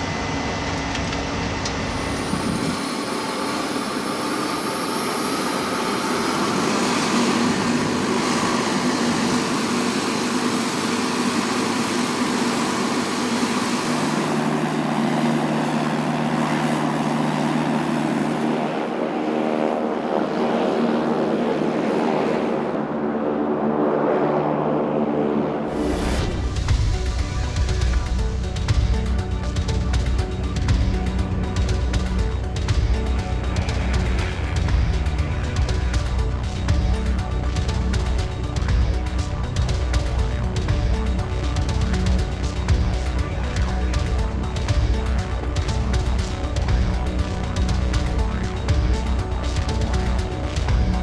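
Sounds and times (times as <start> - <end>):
high whine rising in pitch: 0.0 - 29.8
turboprop engine running: 0.0 - 51.0
steady low hum: 21.6 - 51.0.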